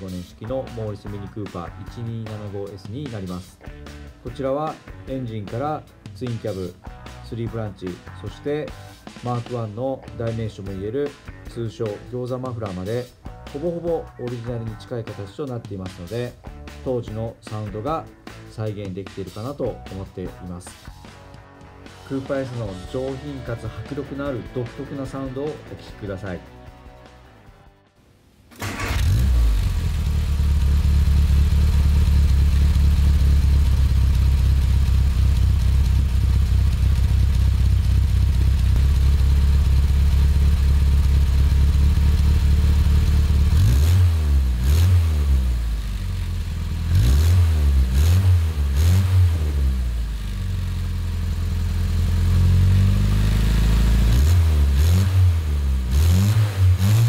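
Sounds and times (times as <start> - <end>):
engine revving: 28.6 - 57.0
car exhaust idling: 29.0 - 57.0.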